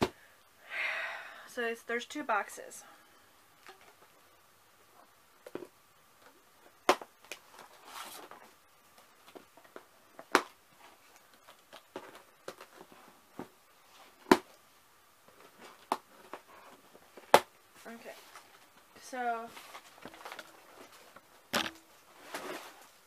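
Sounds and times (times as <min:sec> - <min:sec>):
scraping rustle: 0:22.0 - 0:23.0.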